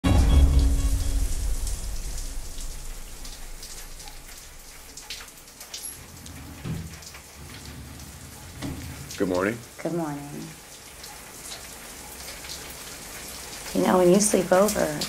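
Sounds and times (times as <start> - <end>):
low music cue: 0.0 - 3.8
rain pattering: 0.0 - 15.0.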